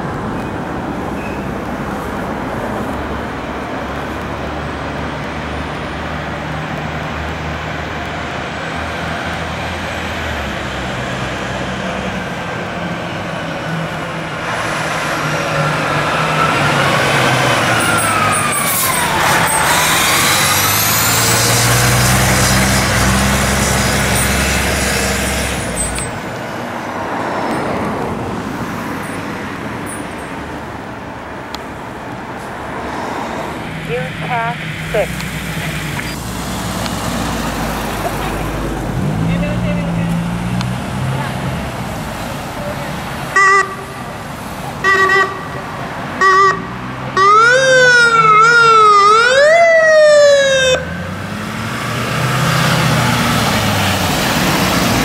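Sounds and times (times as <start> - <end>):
fire engine passing: 0.0 - 55.0
road traffic: 0.0 - 55.0
fire engine siren wailing: 12.9 - 26.1, 44.8 - 51.1.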